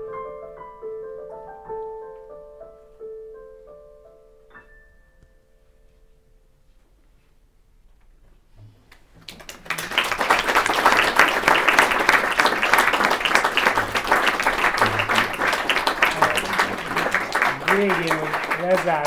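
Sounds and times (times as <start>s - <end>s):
piano tone: 0.0s - 6.7s, 11.1s - 19.0s
audience applause: 9.2s - 19.0s.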